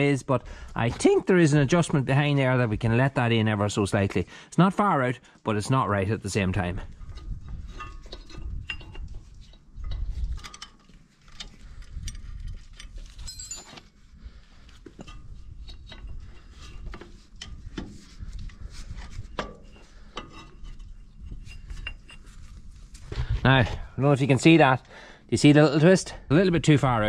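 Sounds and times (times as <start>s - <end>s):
light metallic clicks and clinks: 7.8s - 14.0s.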